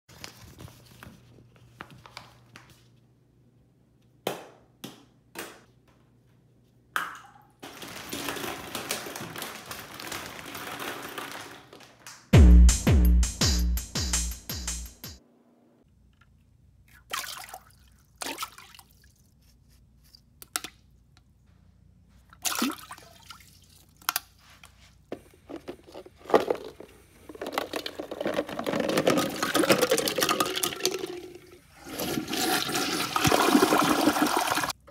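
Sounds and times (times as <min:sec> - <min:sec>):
plastic balls clattering: 0:07.6 - 0:12.0, 0:25.1 - 0:31.4
toilet flushing: 0:28.8 - 0:34.8.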